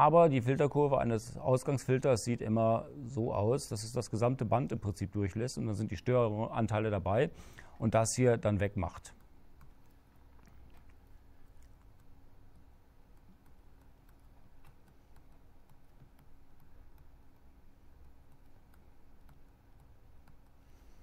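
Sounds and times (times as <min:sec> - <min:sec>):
steady low hum: 0:00.0 - 0:21.0
stylus tapping on tablet: 0:11.8 - 0:20.6.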